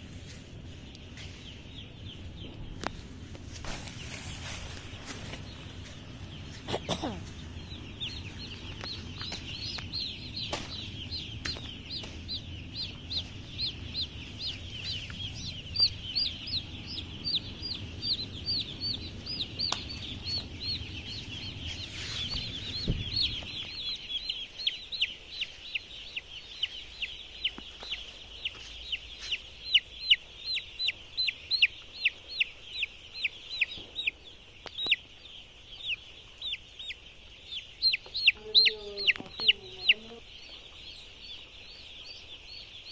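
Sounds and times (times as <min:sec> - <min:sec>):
low rumble: 0:00.0 - 0:31.6
chicks peeping: 0:00.0 - 0:42.9.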